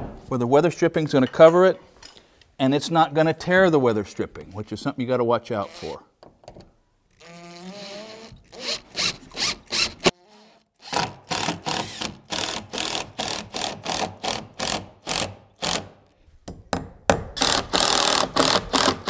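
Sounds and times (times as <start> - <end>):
impact driver hammering screw: 7.2 - 10.2, 10.8 - 15.9, 17.4 - 19.0.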